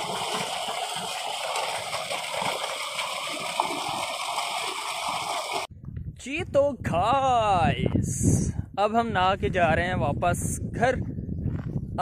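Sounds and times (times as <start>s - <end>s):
water jet splashing into tank: 0.0s - 5.7s.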